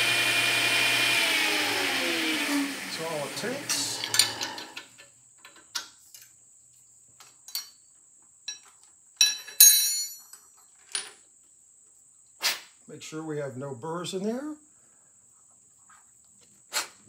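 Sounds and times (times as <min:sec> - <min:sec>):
metallic clinks of wrench and workpiece: 0:07.5 - 0:07.8, 0:08.5 - 0:11.1.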